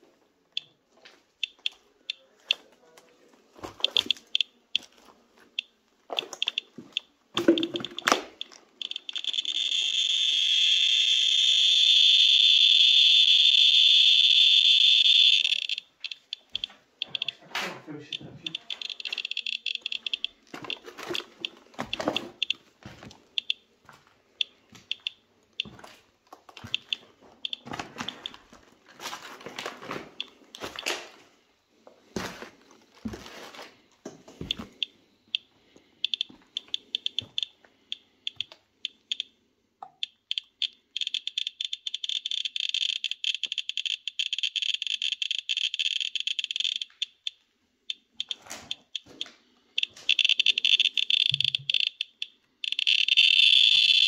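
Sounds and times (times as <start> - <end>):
geiger counter chirping: 1.4 - 2.6, 3.7 - 4.9, 5.6 - 22.6, 23.4 - 23.6, 24.4 - 25.8, 26.6 - 28.4, 34.4 - 54.0
footsteps crunching on debris: 4.8 - 7.0, 20.4 - 24.9, 25.6 - 34.8.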